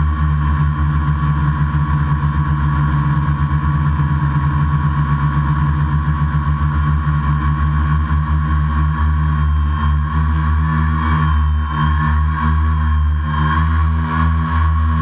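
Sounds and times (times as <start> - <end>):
drone propellers buzzing: 7.0 - 15.0.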